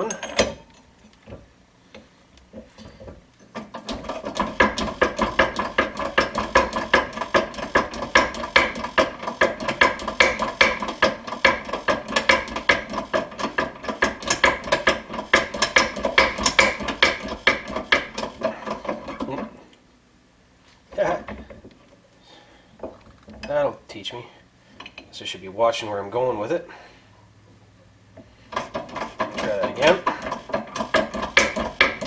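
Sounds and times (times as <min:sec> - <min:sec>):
hand pump clicking and rattling: 0:00.0 - 0:01.4, 0:03.5 - 0:19.5, 0:28.5 - 0:32.0.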